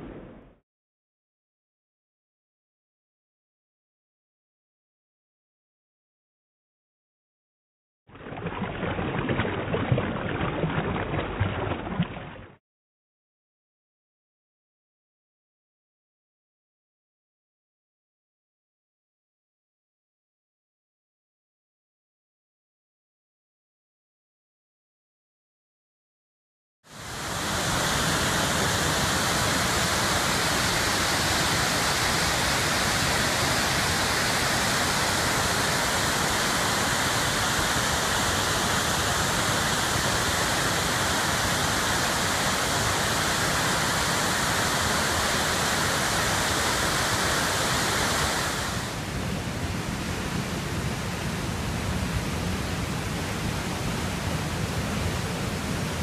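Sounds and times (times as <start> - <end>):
floodwater running through channel: 8.1 - 12.6, 26.9 - 56.0
waterfalls rushing: 26.9 - 56.0.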